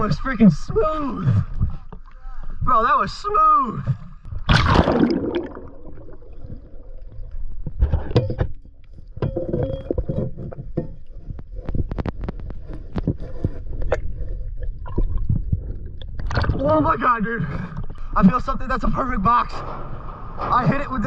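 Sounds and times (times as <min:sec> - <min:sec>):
river water sloshing and gurgling: 0:04.3 - 0:07.7, 0:13.9 - 0:16.9
steady low rumble: 0:13.6 - 0:21.0.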